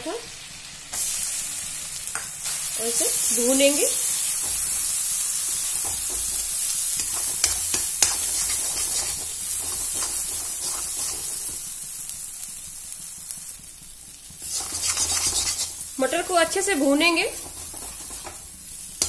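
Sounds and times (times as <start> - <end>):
paste sizzling in hot oil: 0.0 - 19.0
spatula stirring and scraping: 4.1 - 11.7, 14.2 - 19.0.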